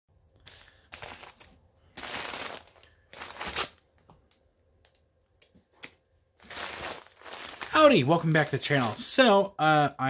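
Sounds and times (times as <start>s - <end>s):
plastic mailer crinkling: 0.5s - 3.8s, 6.4s - 9.2s.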